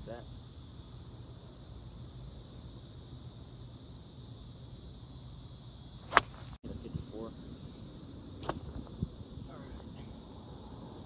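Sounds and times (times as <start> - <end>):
insect chorus: 0.0 - 11.0
golf club striking ball: 6.0 - 6.5, 8.4 - 8.9.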